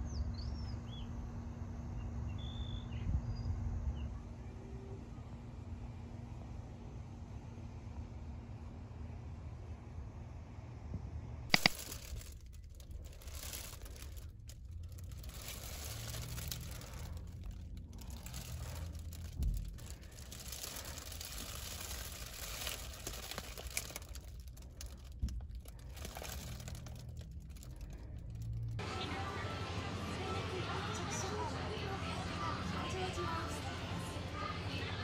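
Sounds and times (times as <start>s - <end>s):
material rustling and crinkling: 11.5s - 28.8s.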